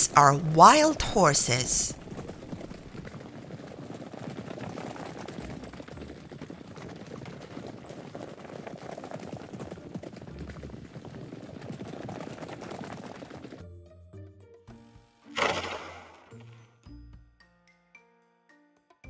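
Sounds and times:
horse hooves galloping on dry ground: 0.1 - 13.7.

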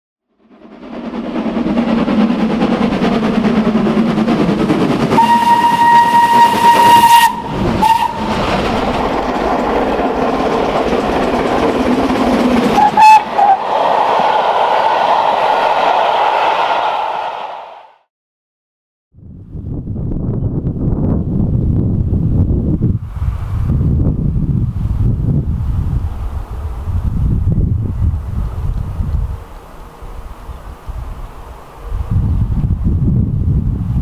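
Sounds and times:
steam locomotive running: 0.3 - 18.0
locomotive whistle: 5.1 - 8.6, 12.7 - 18.0.

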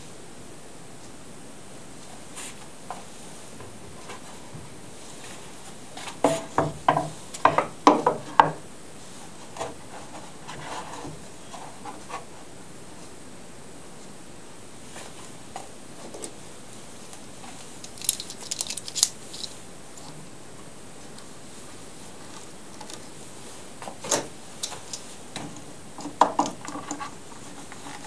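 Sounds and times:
faint handling noises: 14.8 - 20.3, 21.0 - 28.0.

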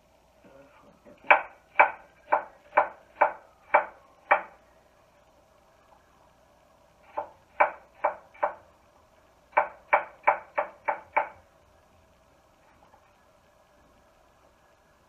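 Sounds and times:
knife chopping on wooden board: 1.3 - 4.5.

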